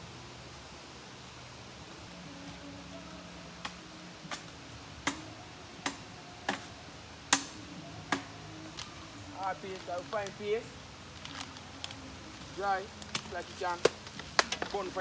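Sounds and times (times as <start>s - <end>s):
firewood sticks cracking: 3.6s - 15.0s.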